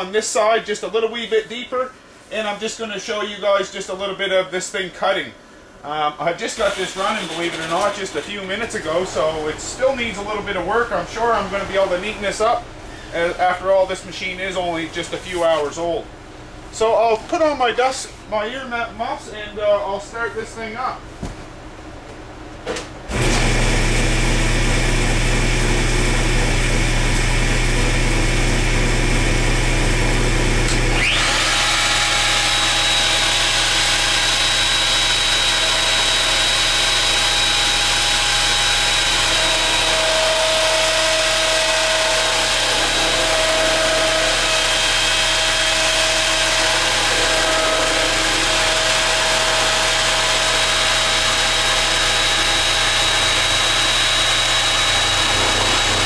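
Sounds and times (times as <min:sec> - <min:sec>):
router whining: 0:06.6 - 0:10.5, 0:29.9 - 0:56.0
motor humming: 0:23.1 - 0:56.0.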